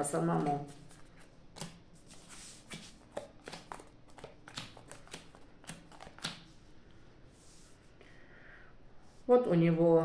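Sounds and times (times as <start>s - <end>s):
playing cards clicking and slapping: 0.4s - 6.6s.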